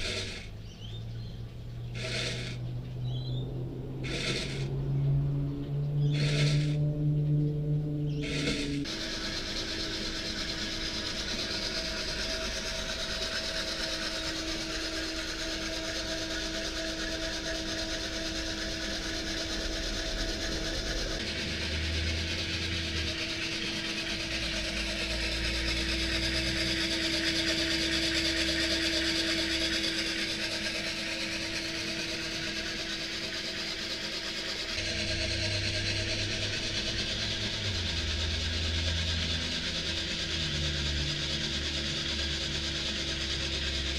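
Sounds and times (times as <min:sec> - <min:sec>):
machine humming: 0:00.0 - 0:43.9.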